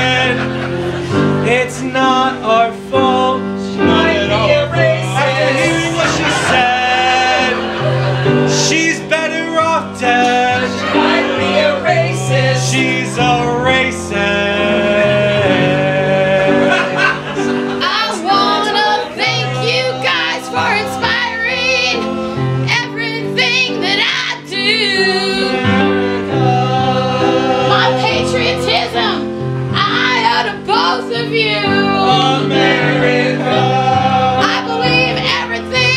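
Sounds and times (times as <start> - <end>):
voices singing: 0.0 - 35.9.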